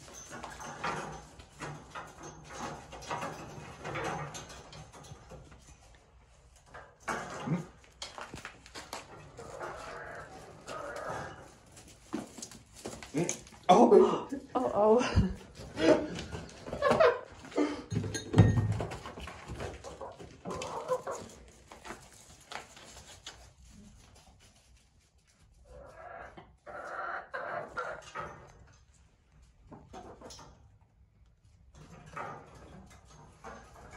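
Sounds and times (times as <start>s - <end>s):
hens clucking: 8.9s - 12.4s, 15.4s - 17.6s, 19.5s - 21.5s, 25.6s - 28.3s.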